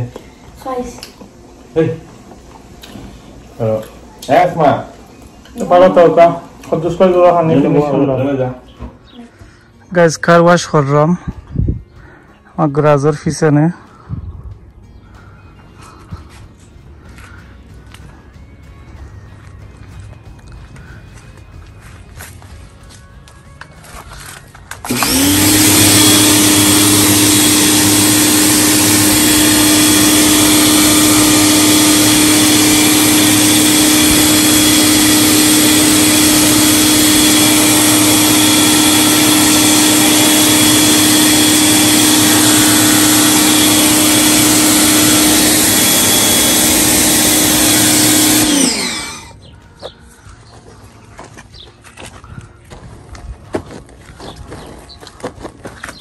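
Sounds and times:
pressure washer running: 24.8 - 49.4.

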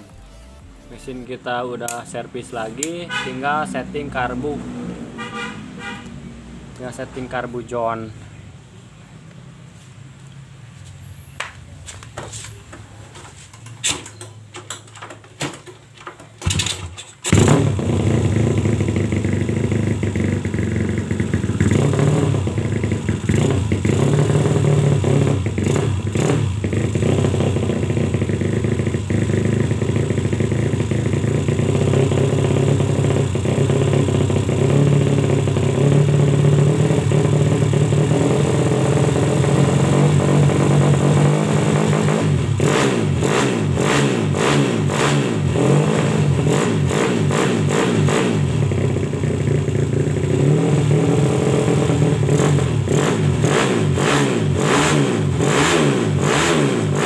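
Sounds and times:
motorcycle engine idling: 17.7 - 38.0, 48.6 - 50.4.

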